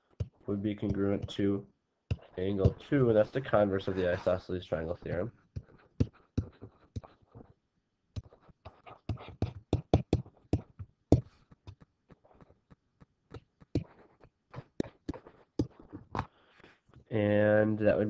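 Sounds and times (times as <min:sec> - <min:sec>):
stylus tapping and scratching: 0:00.0 - 0:17.0.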